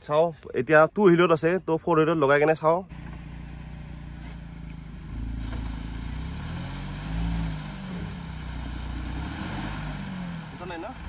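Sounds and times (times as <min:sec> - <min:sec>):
car engine revving: 0:02.9 - 0:11.0.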